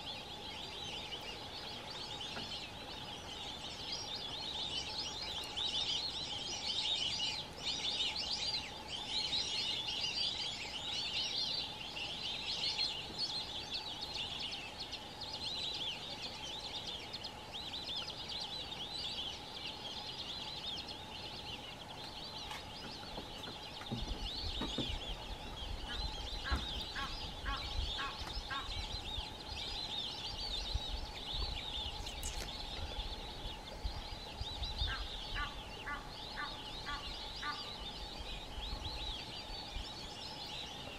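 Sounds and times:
ducks whistling: 24.2s - 30.6s, 34.6s - 39.3s.

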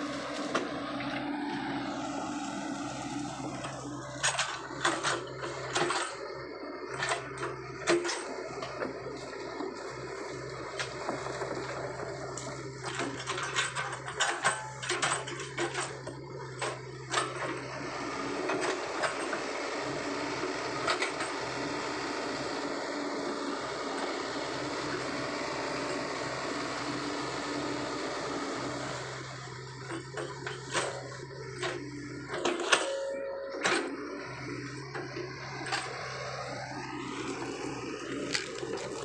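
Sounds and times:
excavator diesel engine humming: 0.0s - 39.0s
cracks and clanks of brush: 37.4s - 39.0s.

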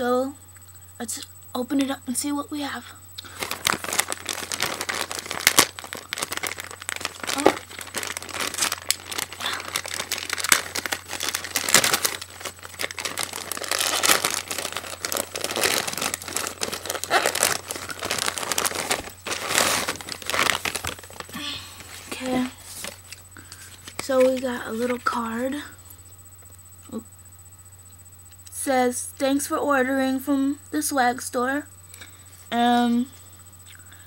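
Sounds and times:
packaging crinkling and rustling: 3.2s - 25.2s.

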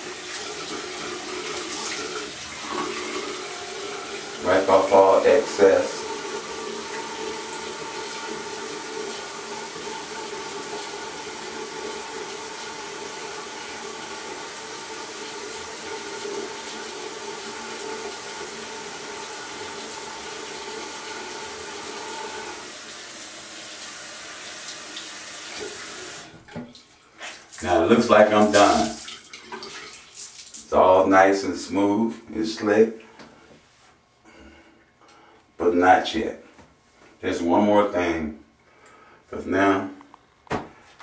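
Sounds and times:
sink tap running: 0.0s - 30.7s.

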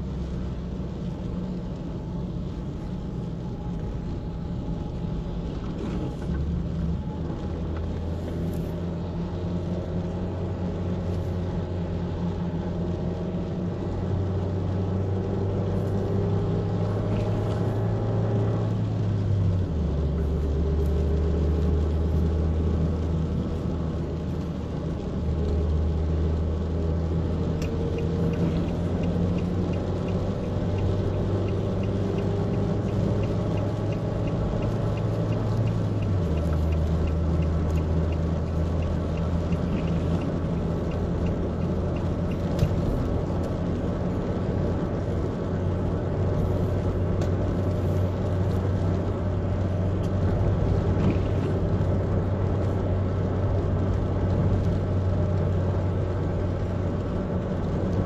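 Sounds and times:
car engine and tyre rumble: 0.0s - 58.0s
light regular ticking: 18.8s - 58.0s.

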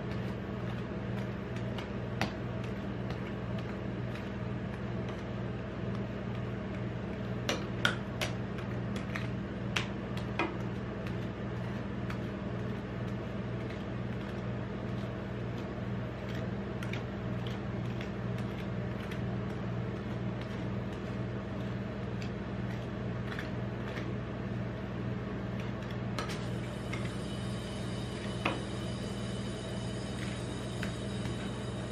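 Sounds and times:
steady low hum: 0.0s - 31.9s.

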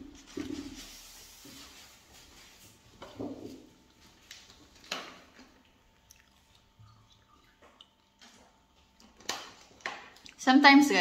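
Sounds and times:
person chewing food: 3.8s - 10.4s.

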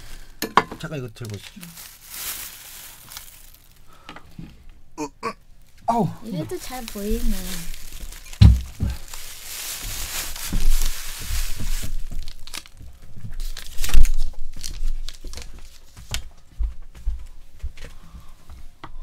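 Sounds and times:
paper wrapper crinkling and tearing: 0.0s - 4.0s, 5.6s - 16.2s
foil and plastic bag crinkling: 0.0s - 4.1s, 5.6s - 16.3s.

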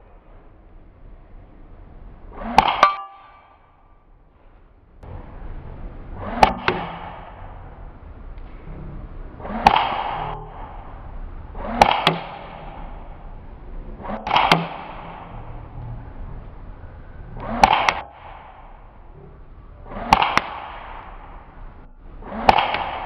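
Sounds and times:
airsoft gun shots: 2.3s - 3.8s, 6.2s - 7.8s, 9.4s - 13.3s, 14.0s - 15.7s, 17.4s - 19.0s, 19.9s - 23.0s.

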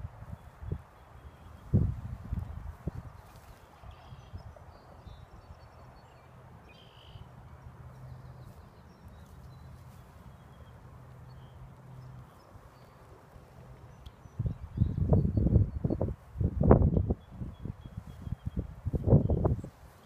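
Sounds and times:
faint bird chirps: 3.0s - 7.4s.

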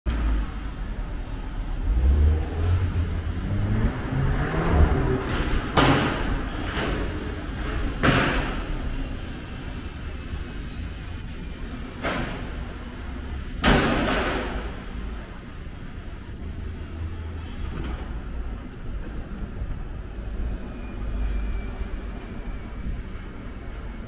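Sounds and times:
heavy vehicle engine revving: 0.1s - 9.0s.

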